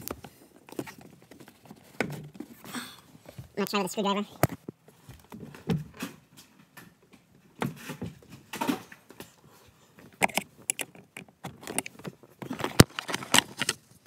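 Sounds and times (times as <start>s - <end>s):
screwdriver prying plastic cover: 10.2s - 13.8s.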